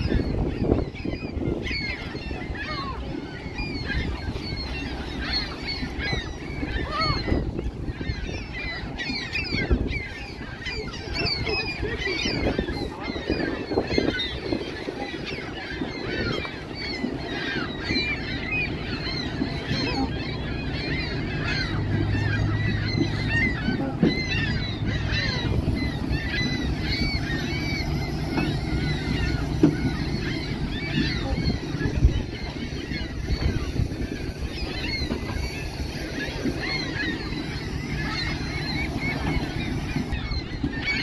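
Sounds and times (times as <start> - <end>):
waterbirds calling: 0.0 - 41.0.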